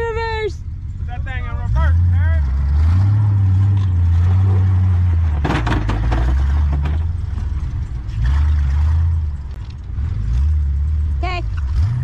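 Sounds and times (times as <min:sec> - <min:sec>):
pickup truck engines running hard: 0:00.0 - 0:12.0
tyres spinning in snow: 0:01.4 - 0:12.0
clattering and scraping: 0:02.5 - 0:10.6.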